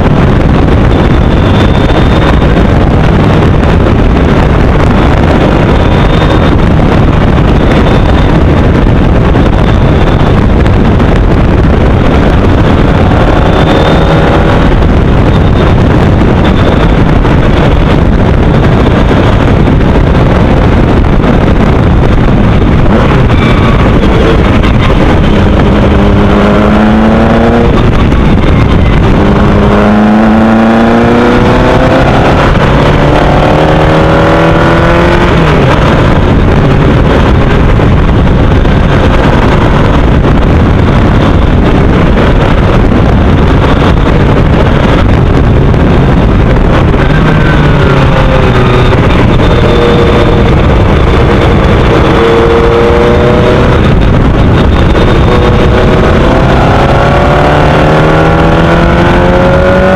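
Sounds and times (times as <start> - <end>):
wind noise on microphone: 0.0 - 59.9
race car engine accelerating: 22.8 - 37.4, 46.0 - 59.9.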